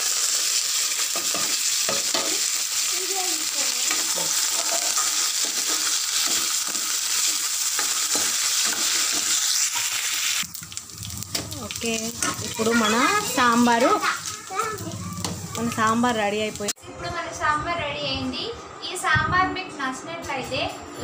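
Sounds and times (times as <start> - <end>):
spices sizzling in hot oil: 0.0 - 16.8.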